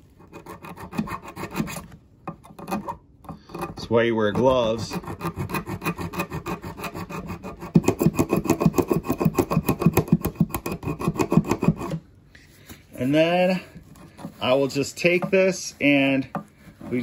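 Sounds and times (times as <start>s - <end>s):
hand saw cutting plastic: 0.0s - 12.0s.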